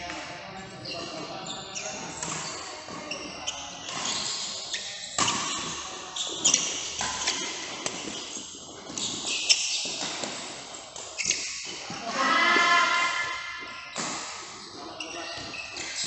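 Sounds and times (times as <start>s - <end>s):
shoes squeaking on court floor: 0.0s - 16.0s
racket hitting shuttlecock: 2.0s - 14.6s.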